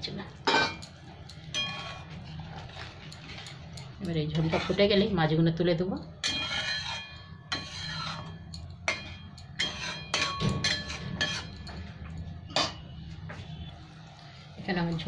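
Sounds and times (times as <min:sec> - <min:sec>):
spatula tapping metal pan: 0:06.2 - 0:11.8.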